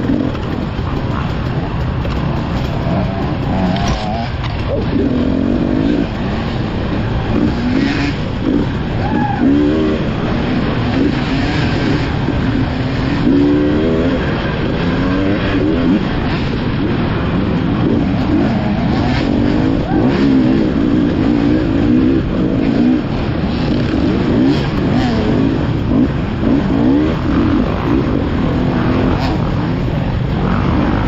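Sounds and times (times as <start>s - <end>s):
dirt bike engine revving: 0.0s - 31.0s.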